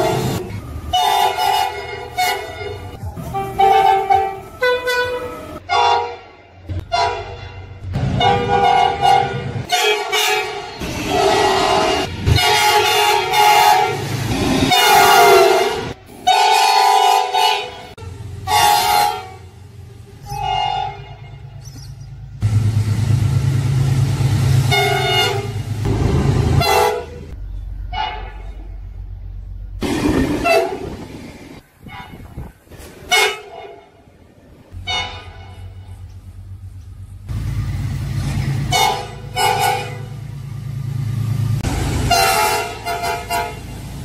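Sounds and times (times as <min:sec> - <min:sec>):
locomotive horn blasts: 0:00.0 - 0:19.6, 0:20.2 - 0:21.6, 0:24.6 - 0:28.6, 0:30.4 - 0:31.0, 0:33.1 - 0:34.1, 0:34.8 - 0:36.0, 0:38.6 - 0:40.2, 0:42.0 - 0:43.8
train rumbling past: 0:00.0 - 0:44.0.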